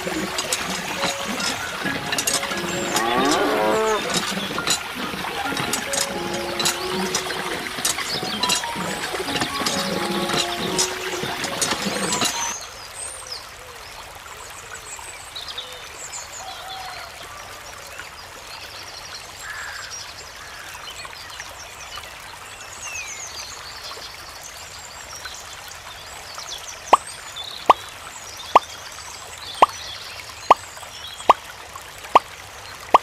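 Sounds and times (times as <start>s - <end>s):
background music: 0.0s - 12.6s
water trickling: 0.0s - 12.8s.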